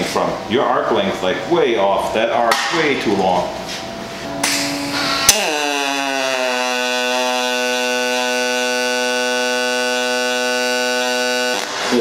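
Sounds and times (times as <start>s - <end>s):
welding arc buzzing: 3.8s - 12.0s.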